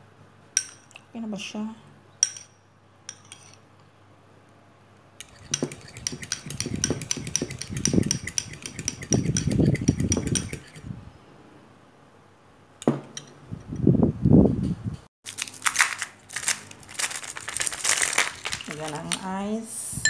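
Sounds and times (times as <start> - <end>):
fork clicking against ceramic bowl: 5.2 - 10.8
wet swishing mixture: 5.3 - 10.8.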